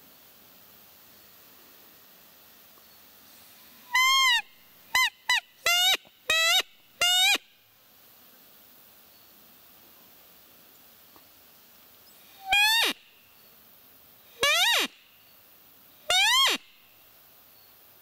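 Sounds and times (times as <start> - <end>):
deer call squeaks: 3.9 - 7.4, 12.4 - 13.0, 14.4 - 14.9, 16.1 - 16.7.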